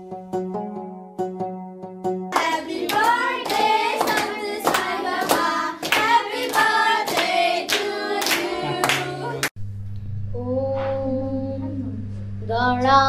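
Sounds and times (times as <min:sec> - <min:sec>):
hands clapping to a beat: 0:02.3 - 0:09.5
children singing: 0:02.4 - 0:09.5.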